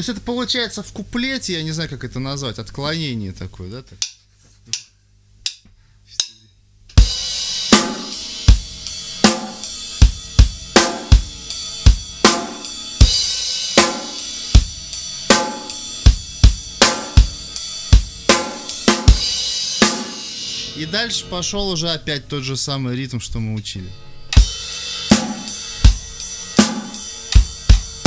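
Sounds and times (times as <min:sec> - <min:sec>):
drumstick ticks: 0:04.0 - 0:06.4
drum kit playing rock beat: 0:07.0 - 0:21.0, 0:24.3 - 0:28.0.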